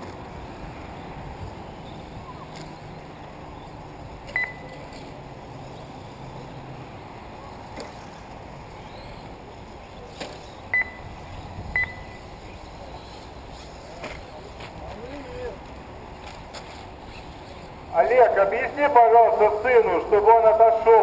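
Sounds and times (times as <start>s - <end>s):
steady outdoor hiss: 0.0s - 21.0s
short electronic beeps: 4.3s - 4.8s, 10.7s - 11.2s, 11.8s - 12.3s.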